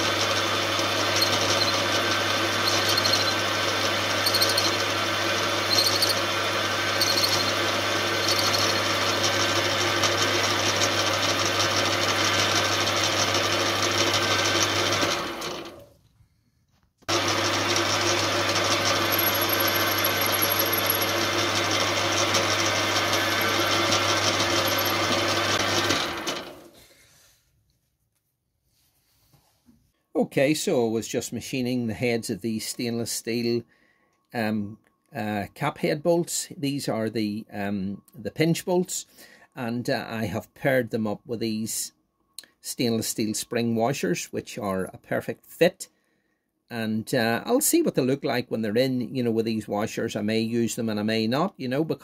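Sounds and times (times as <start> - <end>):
metal lathe humming: 0.0 - 15.8, 17.1 - 26.7.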